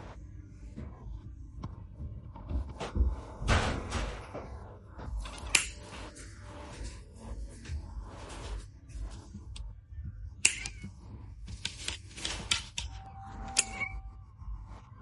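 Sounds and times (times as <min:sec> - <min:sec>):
nail clippers clicking: 0:10.4 - 0:10.9.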